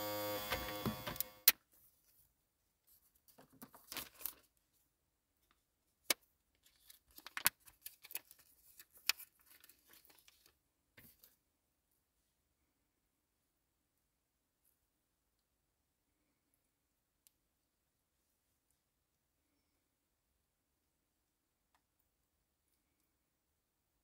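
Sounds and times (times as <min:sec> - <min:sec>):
plastic packet crinkling: 0:03.4 - 0:04.5, 0:06.6 - 0:10.6.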